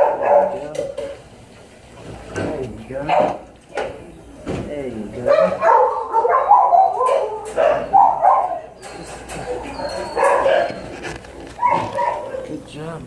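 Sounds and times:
dog barking: 0.0s - 0.9s, 3.0s - 3.4s, 5.2s - 8.8s, 9.5s - 10.9s, 11.6s - 12.6s.

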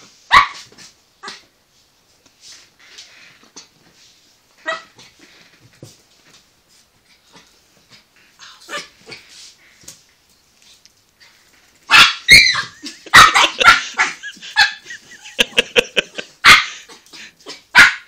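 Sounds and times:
puppy barking: 0.3s - 0.6s, 11.9s - 14.8s, 16.4s - 16.9s, 17.5s - 18.0s.

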